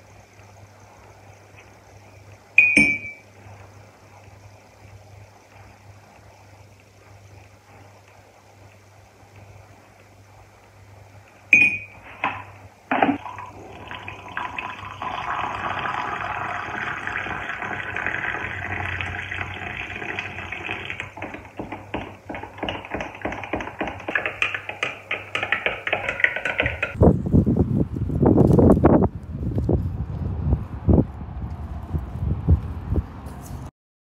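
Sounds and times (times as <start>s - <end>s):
metal spoon tapping a glass: 2.6s - 3.2s, 11.6s - 12.0s, 22.0s - 27.0s
liquid pouring into a glass: 12.9s - 27.0s
spoon stirring and clinking in glass: 21.2s - 27.0s.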